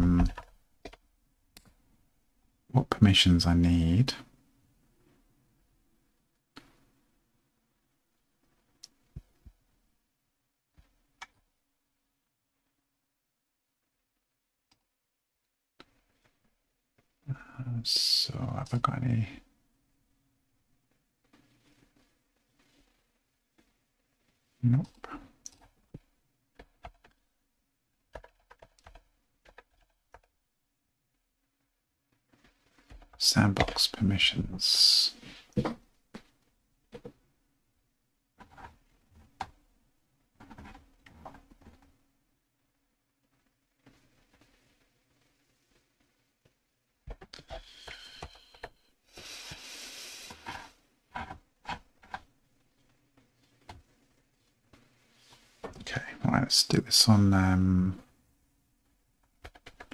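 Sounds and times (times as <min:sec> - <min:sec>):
soft rustling hiss: 0:15.8 - 0:26.5, 0:31.1 - 0:59.9
faint keyboard typing: 0:24.7 - 0:27.3, 0:28.0 - 0:30.4, 0:59.2 - 0:59.9
keyboard and mouse clicks: 0:28.1 - 0:30.3.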